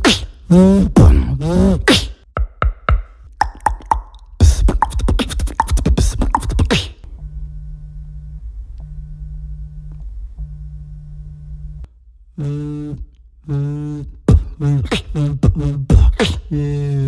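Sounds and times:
beatboxer imitating buzz: 0:00.0 - 0:07.1, 0:12.3 - 0:17.0
sharp mouth clicks: 0:03.2 - 0:07.0
phone vibrating buzz: 0:07.1 - 0:14.1.

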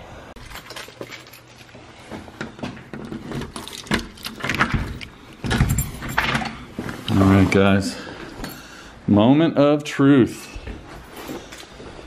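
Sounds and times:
keys and deadbolt clicking: 0:03.4 - 0:06.6.

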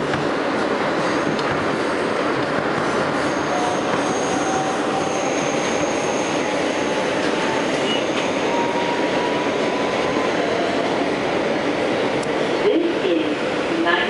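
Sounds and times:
rumble of train wheels on rail: 0:00.0 - 0:14.0
faint high squeal: 0:03.2 - 0:10.3.

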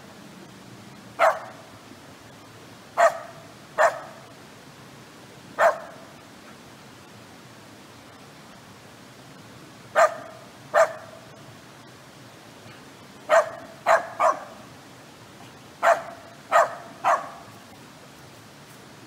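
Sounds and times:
steady hiss: 0:00.0 - 0:19.0
dog barking: 0:01.2 - 0:01.6, 0:03.0 - 0:04.2, 0:05.6 - 0:06.0, 0:10.0 - 0:11.2, 0:13.3 - 0:14.6, 0:15.8 - 0:17.5.

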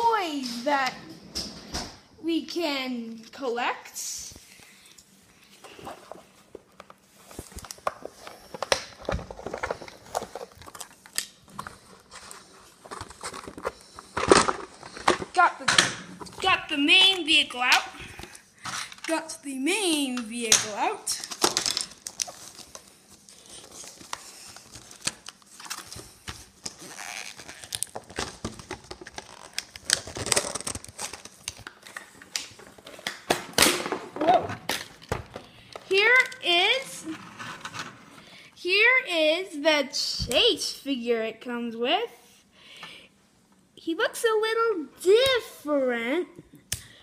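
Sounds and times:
packaging crinkling and scraping: 0:05.5 - 0:17.2, 0:21.1 - 0:38.3.

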